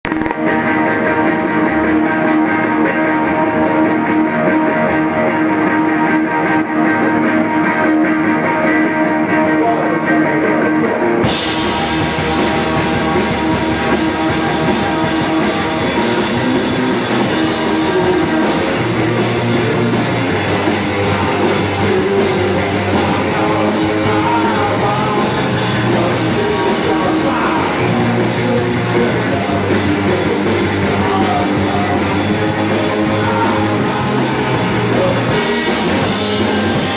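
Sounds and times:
bass guitar: 0.0s - 36.9s
electric guitar: 0.0s - 36.9s
live rock band playing loud: 0.0s - 36.9s
drums and cymbals: 9.6s - 36.9s.

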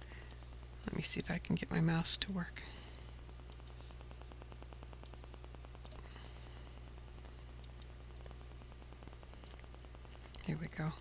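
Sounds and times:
low electrical hum: 0.0s - 11.0s
computer mouse clicks: 3.5s - 3.8s, 7.6s - 7.9s.

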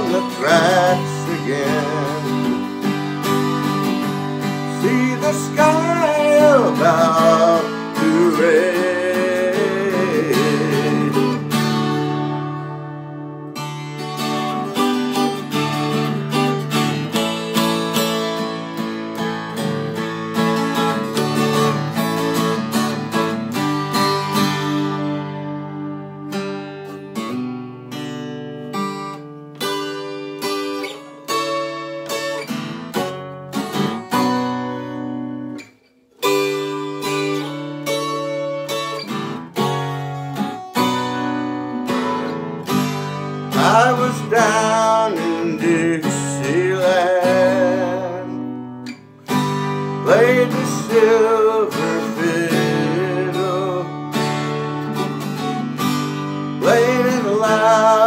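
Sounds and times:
twelve-string acoustic guitar: 0.0s - 58.0s.

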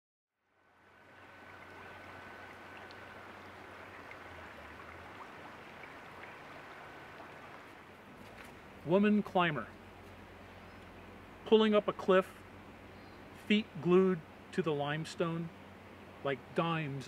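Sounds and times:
creek water babbling over rocks: 0.6s - 9.0s.

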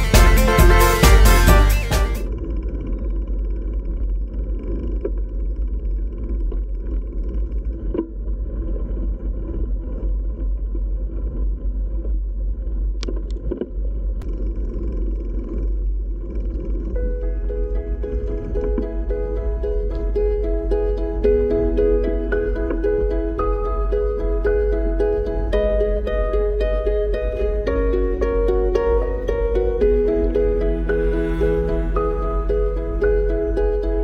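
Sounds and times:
bicycle tyres rolling on pavement: 2.3s - 34.0s
wind noise on microphone: 16.6s - 34.0s.

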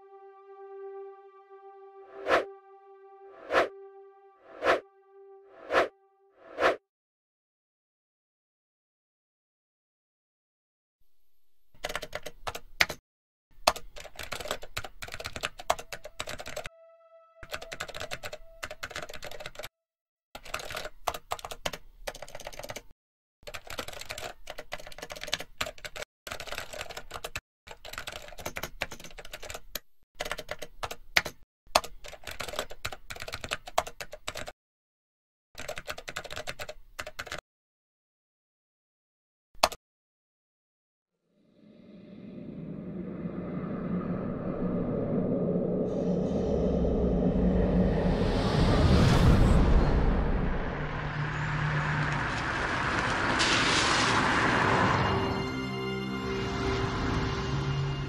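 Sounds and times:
rapid typing on keyboard: 11.8s - 13.0s, 13.6s - 16.7s, 17.4s - 19.7s, 20.4s - 34.5s, 35.6s - 37.4s.

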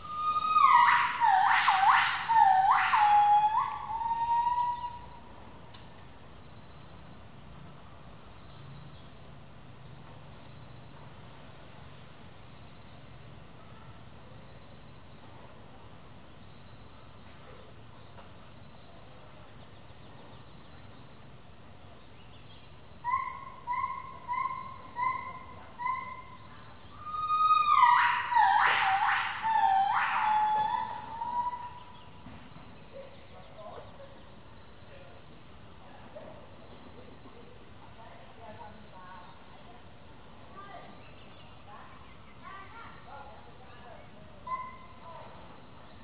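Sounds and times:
gibbon calling: 0.0s - 5.2s, 23.0s - 31.9s.

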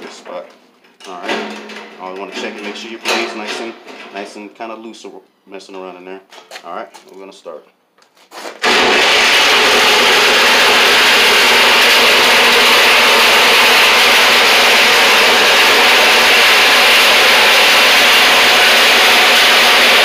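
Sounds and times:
reciprocating saw cutting steel: 8.6s - 20.0s.

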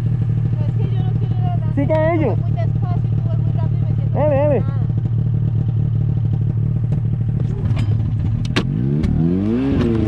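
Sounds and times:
snowmobile engine revving: 8.6s - 10.0s.

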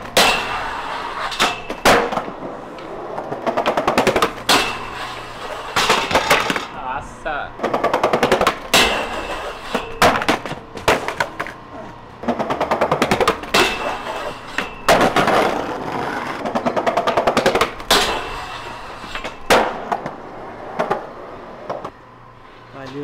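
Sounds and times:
skateboard slamming on handrail: 0.0s - 2.4s, 7.6s - 11.4s, 12.3s - 18.6s, 19.2s - 20.2s
skateboard wheels clacking: 0.0s - 6.8s, 7.6s - 21.9s.

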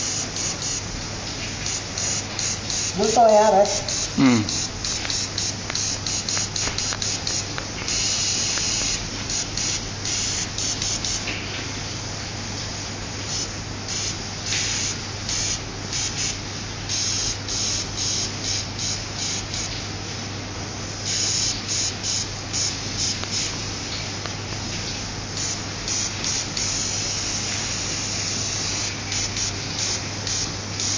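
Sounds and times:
steady low hum: 0.0s - 30.9s
airbrush spraying hiss: 1.6s - 11.2s, 13.3s - 19.7s, 21.0s - 24.6s, 25.3s - 30.9s.

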